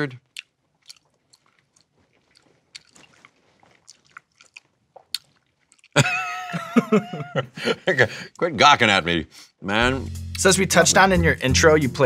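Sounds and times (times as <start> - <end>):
person chewing wetly: 0.0 - 6.3.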